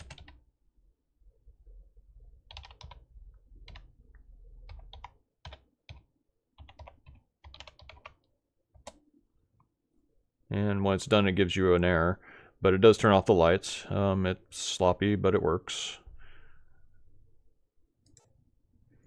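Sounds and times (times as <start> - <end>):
typing on computer keyboard: 0.0 - 0.4, 2.5 - 3.0, 4.7 - 8.2.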